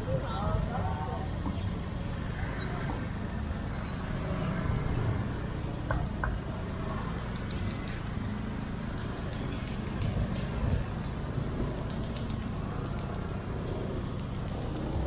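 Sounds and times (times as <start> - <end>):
scooter engines in traffic: 0.0 - 15.0
sharp clicks: 7.1 - 15.0.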